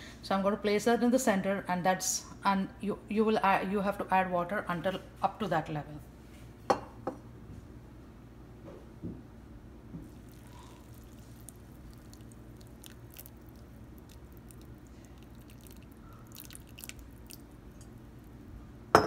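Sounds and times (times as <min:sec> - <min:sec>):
water trickling into bowl: 0:10.2 - 0:18.4.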